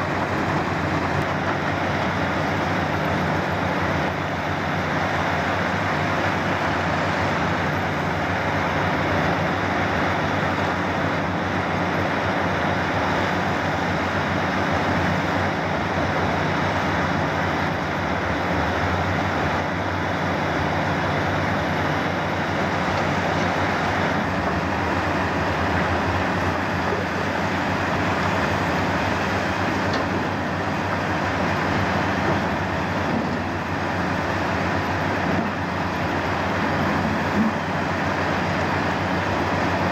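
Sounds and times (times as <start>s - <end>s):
heavy diesel machinery drone: 0.0s - 39.9s.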